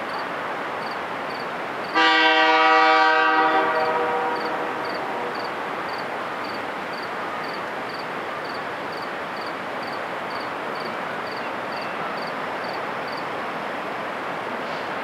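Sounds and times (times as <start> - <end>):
approaching diesel train: 0.0 - 15.0
insect chirping in high pulses: 4.4 - 11.4.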